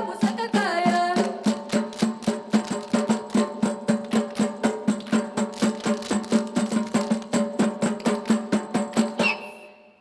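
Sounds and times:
hand-beaten drums: 0.0 - 9.6
hand claps: 4.0 - 9.1.

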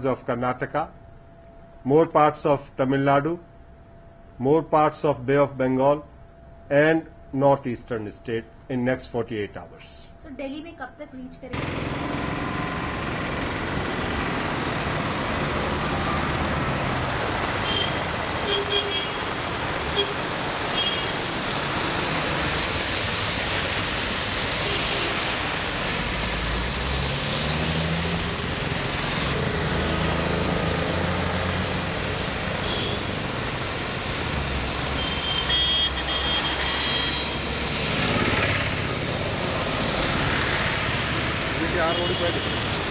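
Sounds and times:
vehicles passing on wet road: 11.6 - 42.9.

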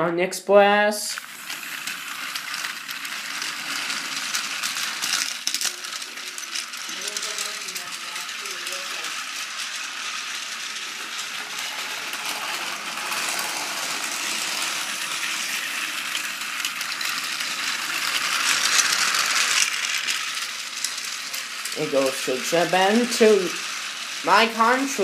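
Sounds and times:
toy train motor whirring: 1.0 - 25.0.

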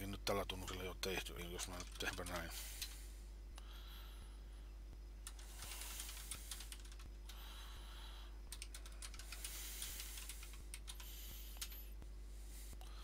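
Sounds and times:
faint keyboard typing: 1.4 - 3.0, 5.2 - 7.4, 8.5 - 12.0.

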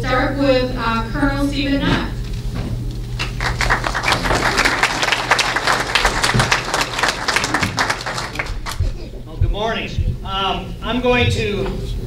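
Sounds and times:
audience applauding: 3.2 - 9.0.

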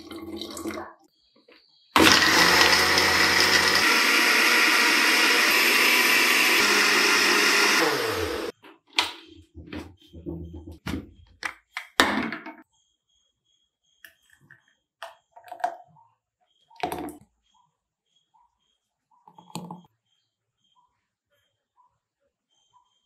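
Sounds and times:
blender running: 2.0 - 8.5.

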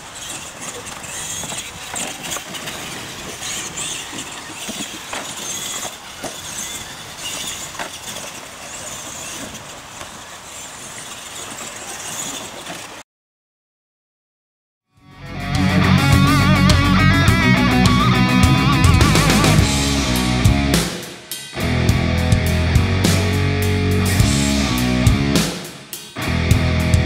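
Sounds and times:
rc truck motors running: 0.0 - 13.0
tyres on dirt: 0.0 - 13.0, 16.0 - 27.0.

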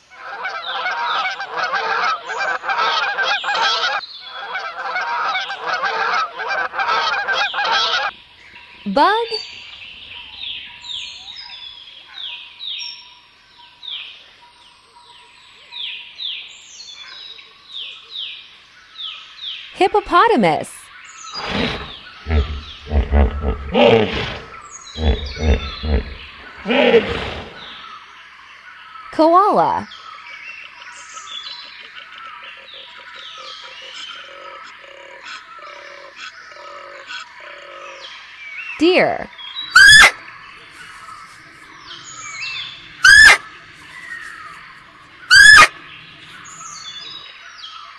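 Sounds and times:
bird chirping: 7.4 - 19.8, 20.4 - 28.2, 29.8 - 47.9
koala bellowing: 21.4 - 27.8, 39.8 - 40.2, 42.5 - 43.6, 45.3 - 45.8.

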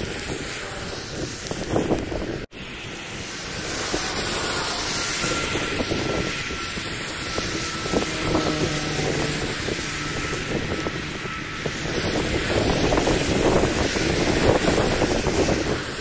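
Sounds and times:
traffic on wet road: 0.0 - 16.0
wind buffeting microphone: 0.0 - 16.0.

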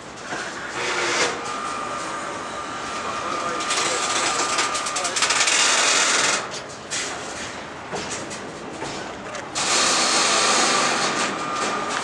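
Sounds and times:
train wheels rolling on rails: 0.0 - 12.0.

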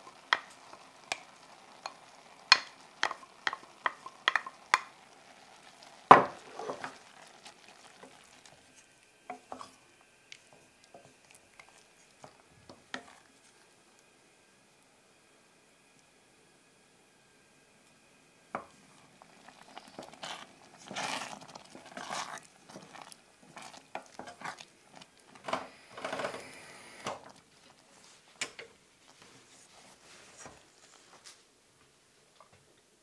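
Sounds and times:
spoon stirring rice in pot: 0.0 - 13.7, 18.6 - 26.4.

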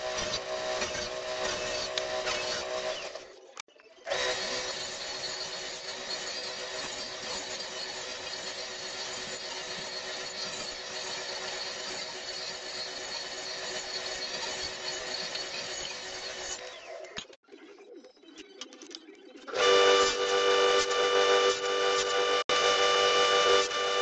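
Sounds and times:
table saw running: 0.0 - 3.3, 4.1 - 16.9, 19.5 - 24.0.

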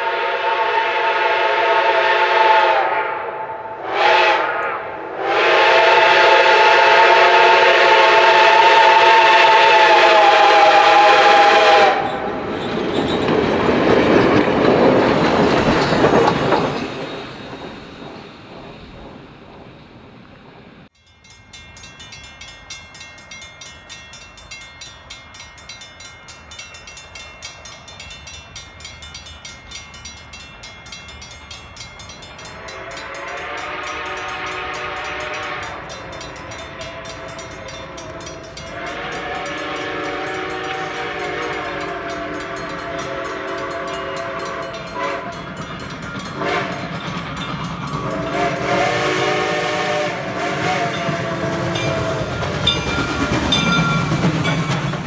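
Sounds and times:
steam locomotive chime whistle: 0.0 - 19.1, 20.9 - 55.0
passing train rhythmic beat: 0.0 - 55.0.

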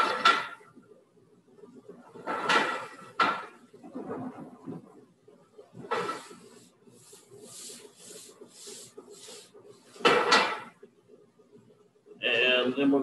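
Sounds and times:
pan tossing swishes: 3.8 - 5.1.

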